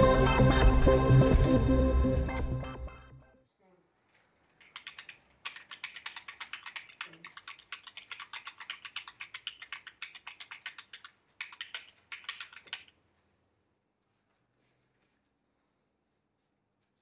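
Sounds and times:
keyboard typing: 4.6 - 13.0.

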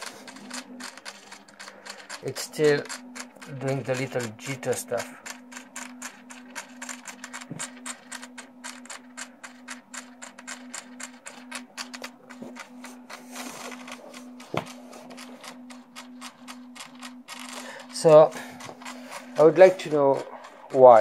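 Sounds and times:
faint steady hum: 0.0 - 21.0
servos clicking rapidly: 0.0 - 21.0.

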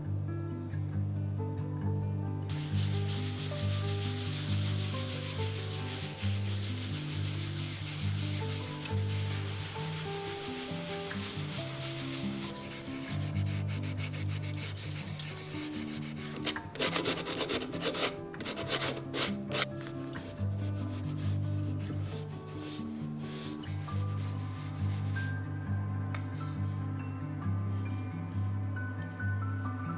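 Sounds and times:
soft background music: 0.0 - 29.9
cloth rubbing wooden board: 2.5 - 25.2.

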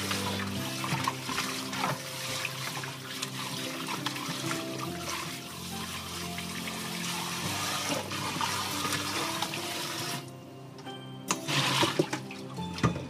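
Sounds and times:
hands rubbing and rinsing chicken: 0.0 - 10.2
tap water running into steel bowl: 0.0 - 10.2, 11.4 - 13.0.

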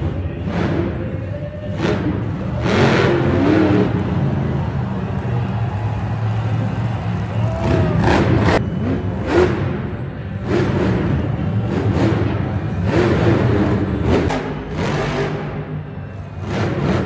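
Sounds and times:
truck engine revving hard: 0.0 - 17.0.

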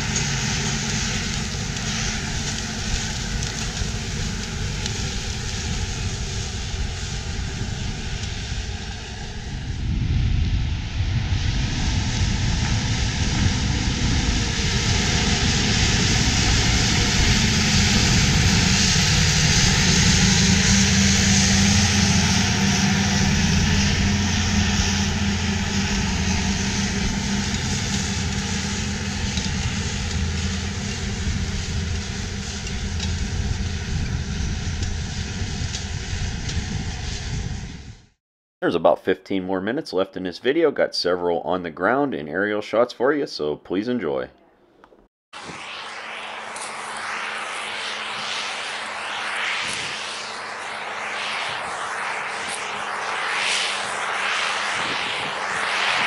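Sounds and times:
tractor diesel engine under load: 0.0 - 8.8, 12.4 - 35.0.

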